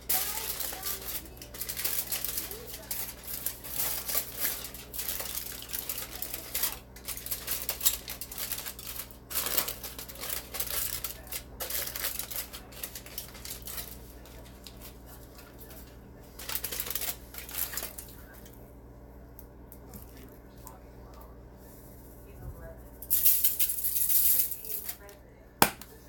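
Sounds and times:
aluminium foil crinkling: 0.0 - 18.6, 23.0 - 25.2.

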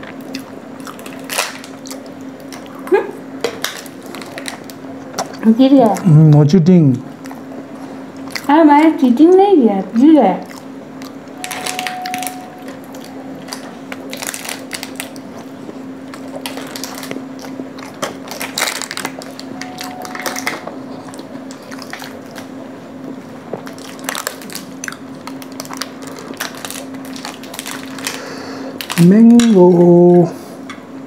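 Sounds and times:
chewing soft pastry: 0.0 - 3.0, 9.8 - 29.9
low hum: 9.8 - 28.1
plastic wrapper crinkling: 11.4 - 22.5, 23.4 - 29.8.

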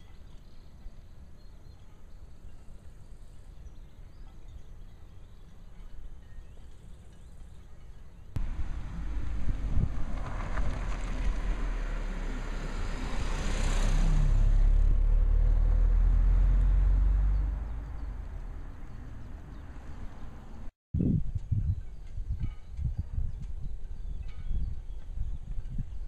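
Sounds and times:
low engine rumble: 6.9 - 22.1
vehicle passing close by: 8.4 - 20.7.

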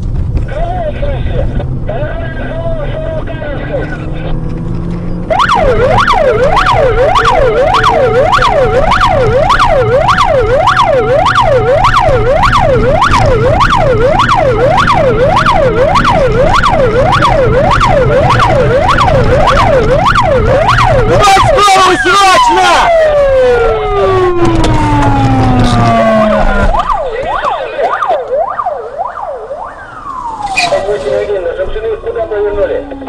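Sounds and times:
low engine hum: 0.0 - 21.1
electronic siren yelping: 5.2 - 31.1.

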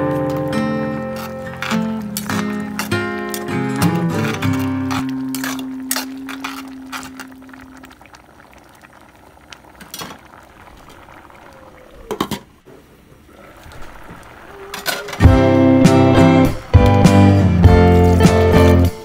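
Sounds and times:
porridge bubbling in a pot: 0.0 - 19.0
metal pot lid clatter: 1.2 - 7.3.

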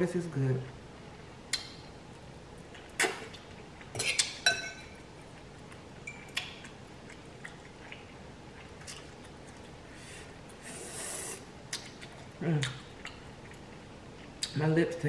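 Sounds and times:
fork clinking against glass bowl: 4.0 - 5.0, 6.1 - 6.4.

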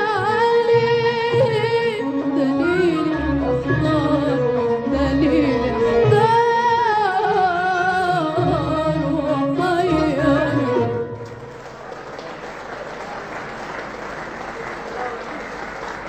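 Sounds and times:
woman singing: 0.0 - 11.1
instrumental accompaniment: 0.0 - 11.9
audience applause: 11.2 - 16.0.

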